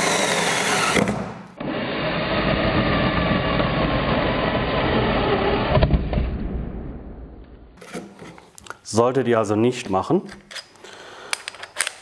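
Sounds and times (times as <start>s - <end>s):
cordless drill boring into wood: 0.0s - 1.2s.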